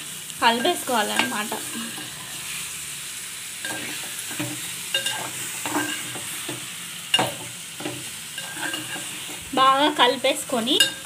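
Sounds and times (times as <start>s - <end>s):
food sizzling in pot: 0.0s - 11.0s
metal spatula scraping pot: 3.6s - 9.5s.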